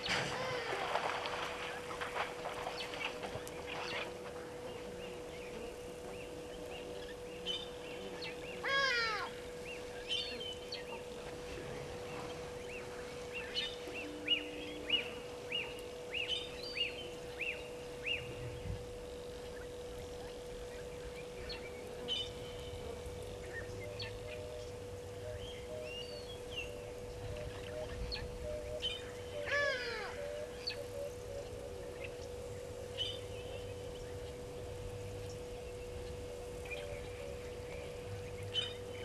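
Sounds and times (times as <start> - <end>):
steady faint tone: 0.0 - 39.0
loud bird call: 8.6 - 9.4, 29.3 - 31.1.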